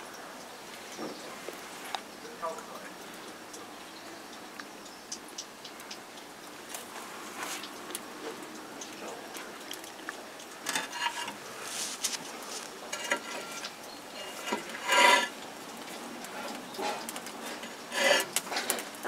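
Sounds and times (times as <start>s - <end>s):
rags scraping and rustling: 10.6s - 19.0s.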